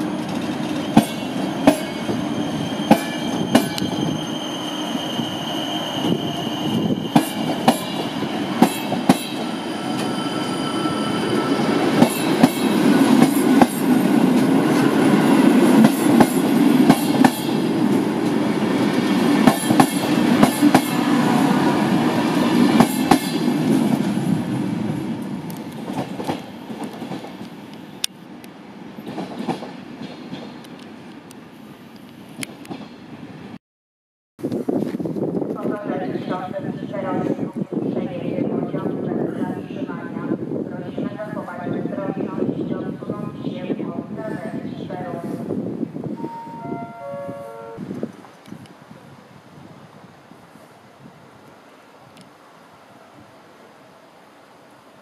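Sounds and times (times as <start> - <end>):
train rumble: 0.0 - 33.6
high wheel squeals: 0.8 - 7.5, 9.4 - 11.8.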